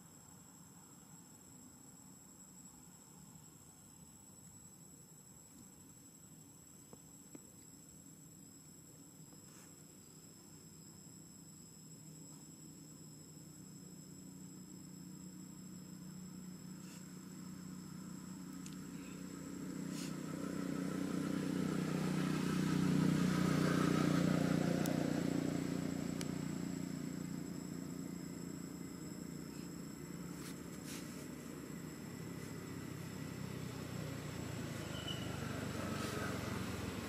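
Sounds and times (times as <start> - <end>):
vehicle engine passing by: 17.5 - 37.0.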